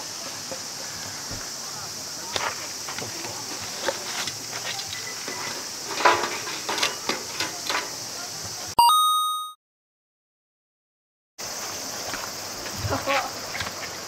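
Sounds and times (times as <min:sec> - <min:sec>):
faint voices: 0:00.0 - 0:08.8
steady hiss: 0:00.0 - 0:08.8, 0:11.4 - 0:14.0
bell-like chime sound effect: 0:08.8 - 0:09.6.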